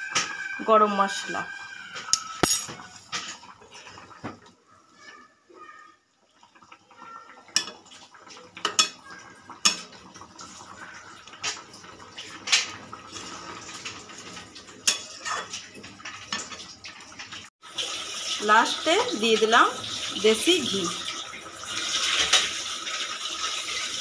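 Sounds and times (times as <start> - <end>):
metal spatula clinking on pan: 2.1 - 2.8, 14.8 - 15.5.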